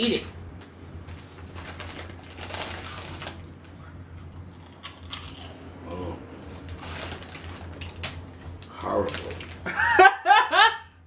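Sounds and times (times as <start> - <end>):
foil snack bag crinkling: 1.1 - 3.7, 6.6 - 9.8
crunchy snacks being chewed: 1.5 - 5.6
hum-like vocal sound: 5.8 - 6.5.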